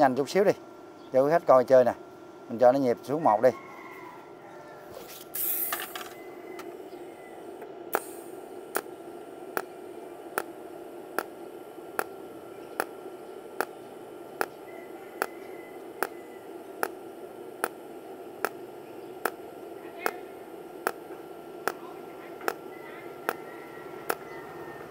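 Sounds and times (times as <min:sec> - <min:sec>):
welder steady hum: 0:00.0 - 0:24.9
welder arc ticking pulses: 0:05.3 - 0:24.9.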